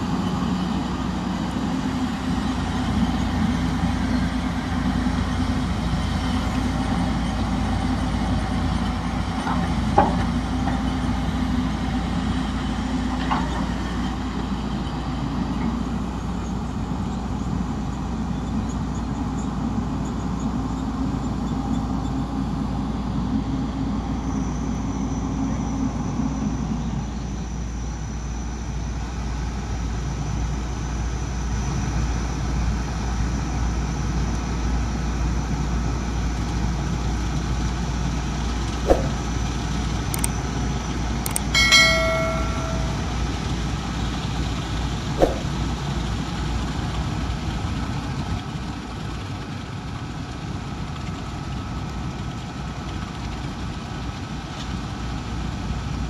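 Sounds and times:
sharp clicks: 0:41.3 - 0:41.5
brief ringing tone: 0:41.3 - 0:43.5.

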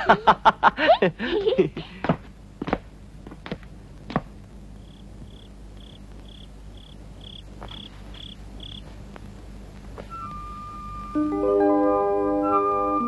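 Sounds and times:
cricket chirping: 0:04.6 - 0:08.9.

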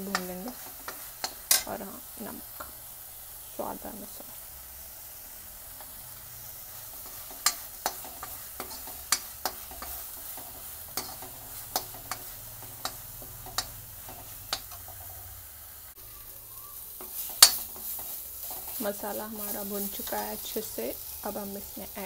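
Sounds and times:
spoon scraping metal pan: 0:00.0 - 0:01.8, 0:06.6 - 0:15.4, 0:17.0 - 0:21.0
paste sizzling in oil: 0:00.0 - 0:22.0.

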